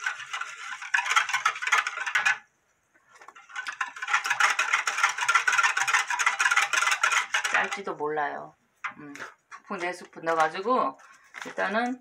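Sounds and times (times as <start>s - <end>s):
wire whisk beating in glass bowl: 0.0s - 2.5s, 3.4s - 7.9s.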